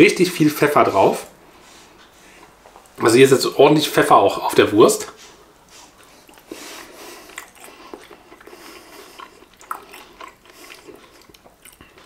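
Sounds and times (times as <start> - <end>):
person chewing food: 5.3 - 12.0.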